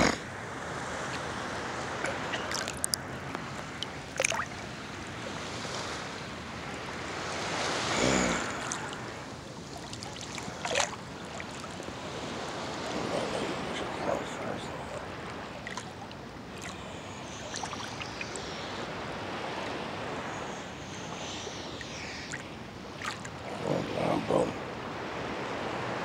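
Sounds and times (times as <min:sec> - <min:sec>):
sea water lapping and sloshing: 0:00.0 - 0:26.0
small water splashes: 0:02.0 - 0:06.2, 0:07.4 - 0:18.6, 0:21.8 - 0:23.6.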